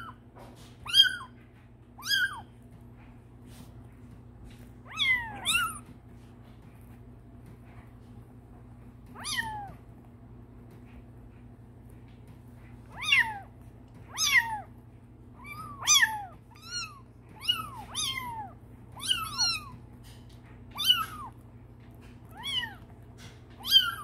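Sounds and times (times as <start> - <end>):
kittens mewing: 0.8 - 2.5, 4.8 - 6.1, 9.1 - 9.9, 12.8 - 24.0.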